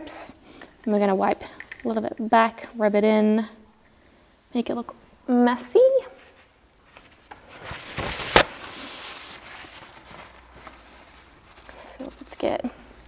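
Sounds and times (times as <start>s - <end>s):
rustling handling noise: 6.2s - 13.0s.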